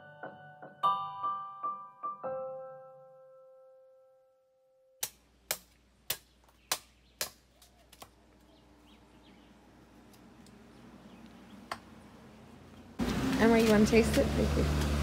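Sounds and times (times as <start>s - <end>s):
machete chopping coconut: 5.0s - 8.1s.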